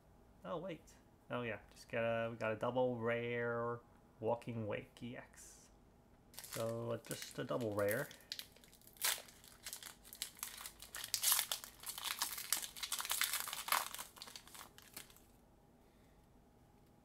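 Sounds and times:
foil wrapper crinkling and tearing: 6.4 - 15.3.

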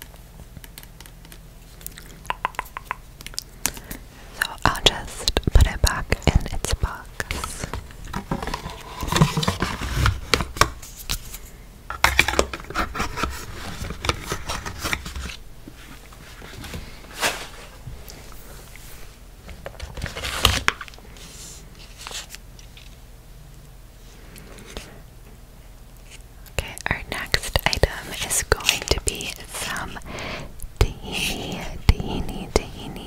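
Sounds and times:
cardboard and paper rustling: 7.2 - 11.4, 12.1 - 17.7, 19.4 - 22.9.

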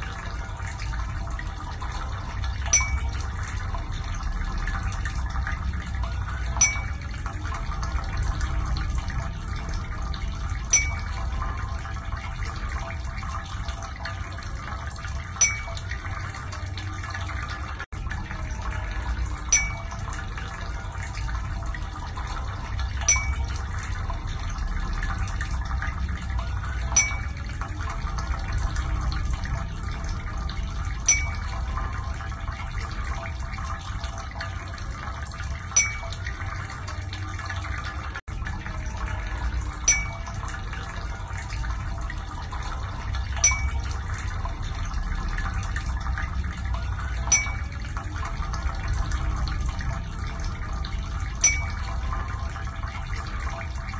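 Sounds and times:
water trickling: 0.0 - 53.9
bright drip-like ping: 2.6 - 3.3, 6.6 - 7.0, 10.7 - 11.3, 15.4 - 16.0, 19.5 - 20.1, 23.0 - 23.6, 26.9 - 27.4, 31.1 - 31.6, 35.7 - 36.2, 39.9 - 40.4, 43.4 - 44.0, 47.3 - 47.8, 51.4 - 52.0.

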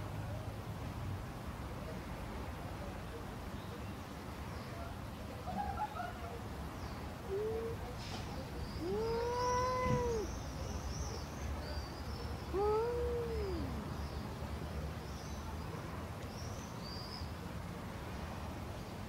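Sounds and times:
cat yowling: 8.8 - 10.3, 12.5 - 13.7.

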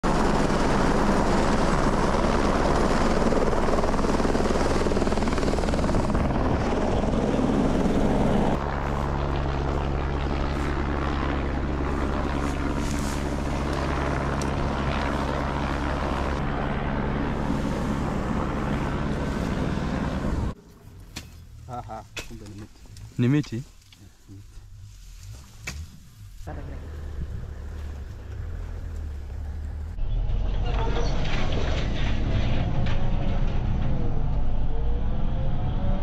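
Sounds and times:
helicopter hovering: 0.0 - 20.6.

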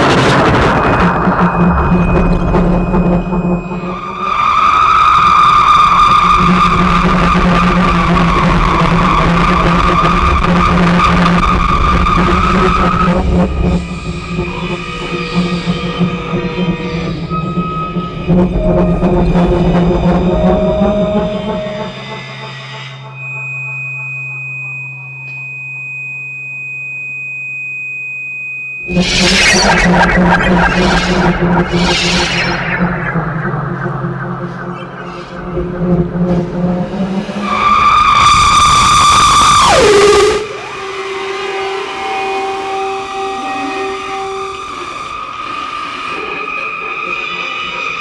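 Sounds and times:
low synthesizer hum: 0.0 - 4.4, 13.1 - 24.8, 28.8 - 37.7
sustained screechy high tone: 0.0 - 13.3, 13.9 - 25.4, 28.8 - 48.0
steady low drone: 0.0 - 25.0, 28.8 - 47.8.

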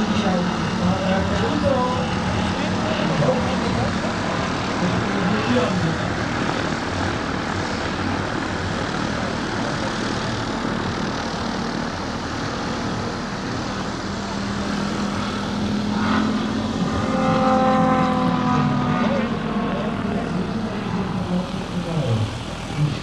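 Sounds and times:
model airplane motor droning: 0.0 - 23.0.

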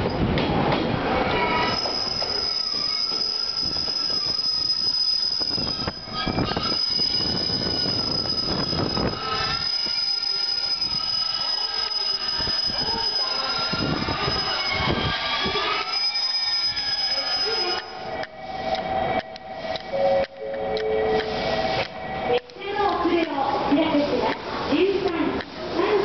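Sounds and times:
wheels rumbling on rails: 0.0 - 26.0
train brake squeal: 1.4 - 20.2.

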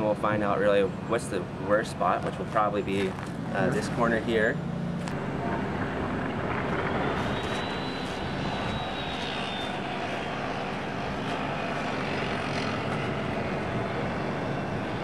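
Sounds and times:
aircraft rumble overhead: 0.0 - 15.0
faint high whine: 3.6 - 15.0.

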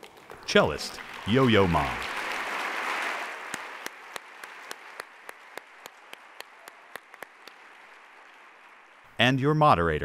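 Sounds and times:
audience applause: 0.0 - 9.2
single sharp claps: 1.0 - 8.8.

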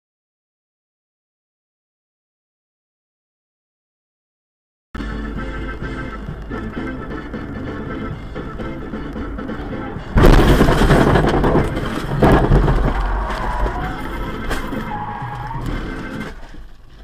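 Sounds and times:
background music: 5.0 - 12.5, 13.6 - 16.4
scraping and tyre noise: 5.0 - 17.0
car crash impacts: 10.0 - 17.0
tyre squeal: 11.4 - 17.0.

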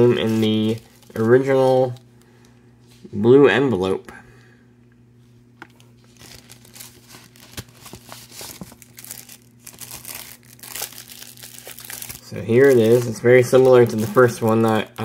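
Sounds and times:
cellophane and paper crinkling: 0.0 - 2.1, 5.7 - 15.0.

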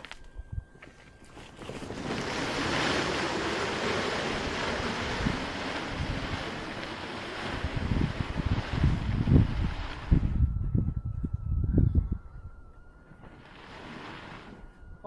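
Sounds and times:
wind rumble on microphone: 0.0 - 15.0
bag dragged across gravel: 1.2 - 10.5, 13.2 - 14.8.

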